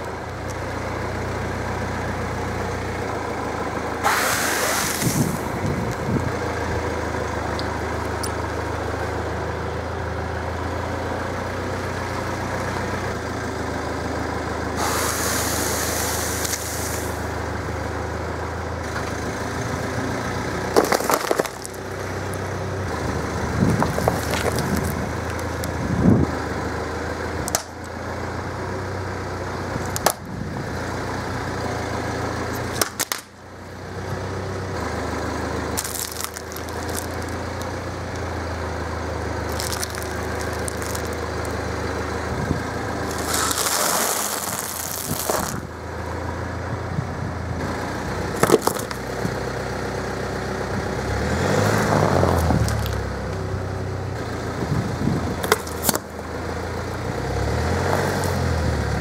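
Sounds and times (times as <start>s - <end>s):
car engine humming: 0.0s - 59.0s
tyre crushing boxes: 20.8s - 21.7s, 35.8s - 37.2s, 43.1s - 45.6s.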